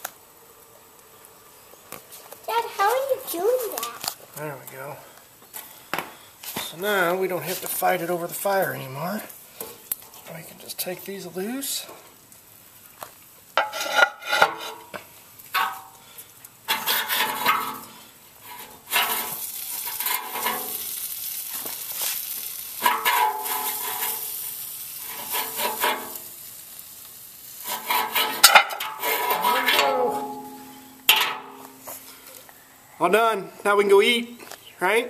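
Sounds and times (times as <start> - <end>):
metal spit scraping: 27.6 - 31.6.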